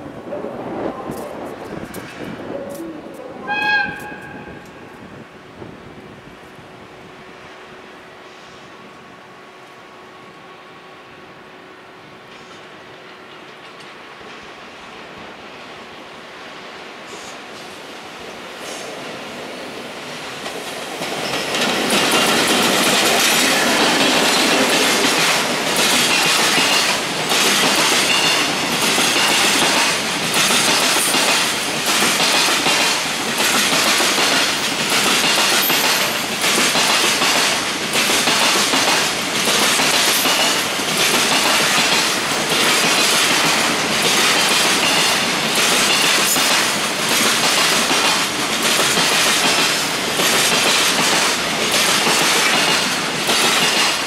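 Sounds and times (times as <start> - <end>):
train wheels clattering over rail joints: 20.3 - 54.0.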